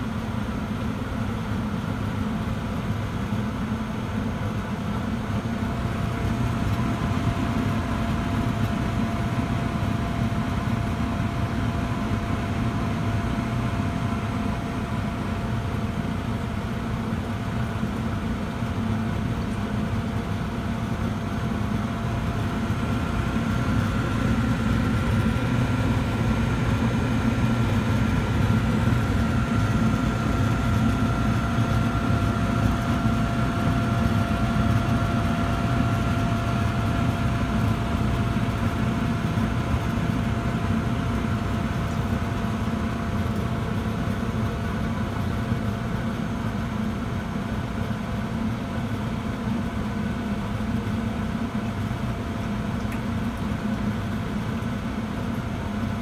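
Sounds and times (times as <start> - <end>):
furnace motor low hum: 0.0 - 56.0
thin steady whine: 0.0 - 56.0.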